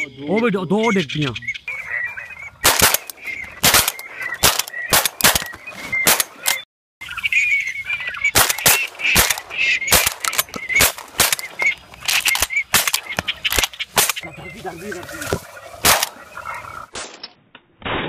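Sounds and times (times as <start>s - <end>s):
ducks calling: 0.0s - 17.0s
shotguns firing: 2.6s - 6.6s, 8.3s - 14.2s, 15.8s - 16.2s.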